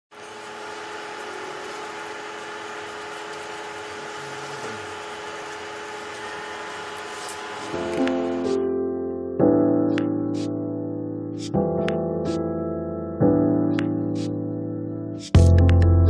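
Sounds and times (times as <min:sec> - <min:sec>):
steady hum with hiss: 0:00.1 - 0:08.5.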